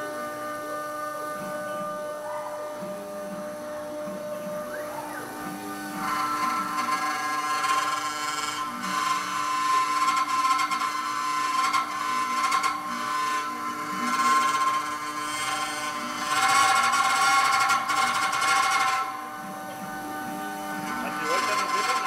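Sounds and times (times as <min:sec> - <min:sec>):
router spindle whining: 0:00.0 - 0:22.0
end mill cutting board: 0:05.4 - 0:22.0.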